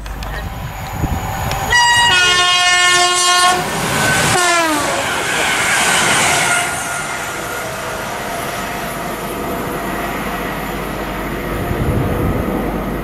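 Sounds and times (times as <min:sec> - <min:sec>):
rush of train carriages passing: 0:00.0 - 0:13.0
train horn: 0:01.7 - 0:07.7.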